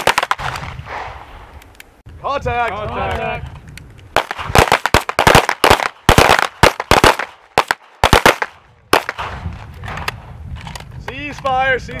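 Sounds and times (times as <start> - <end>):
pistol shots: 4.2 - 9.4.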